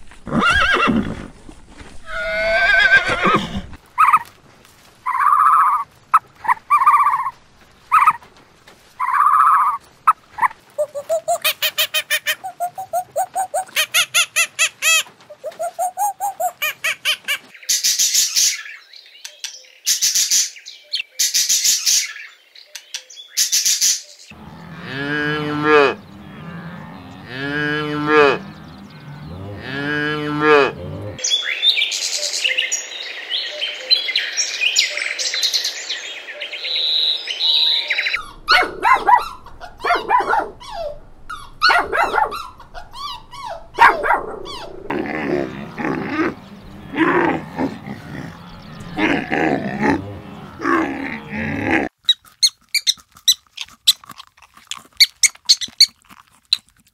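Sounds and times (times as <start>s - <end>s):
animal lowing calls: 2.0s - 4.3s, 5.0s - 8.2s, 9.0s - 17.5s, 24.4s - 31.2s, 38.2s - 53.0s
macaw squawking: 4.0s - 4.3s, 5.1s - 5.8s, 6.4s - 8.2s, 9.0s - 9.8s, 10.4s - 17.5s, 38.2s - 44.9s
birds chirping: 5.0s - 51.8s.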